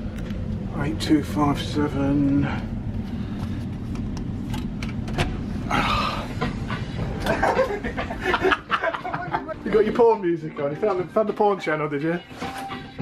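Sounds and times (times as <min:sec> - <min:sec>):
ferry engine rumble: 0:00.0 - 0:09.6.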